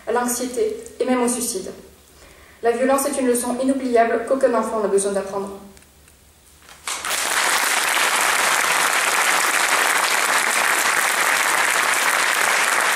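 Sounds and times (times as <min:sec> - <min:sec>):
audience applauding: 0:06.8 - 0:12.9.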